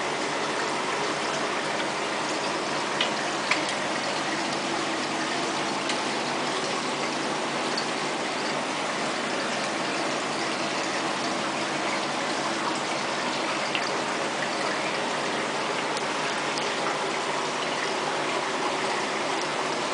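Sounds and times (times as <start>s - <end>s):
running splashing water: 0.0s - 19.9s.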